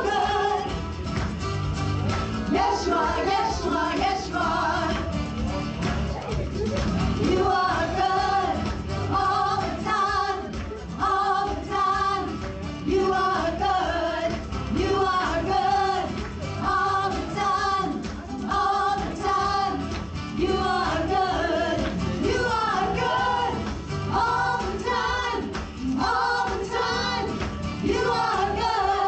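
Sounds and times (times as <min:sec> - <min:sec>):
women singing worship song: 0:00.0 - 0:00.8, 0:02.5 - 0:05.1, 0:07.2 - 0:29.0.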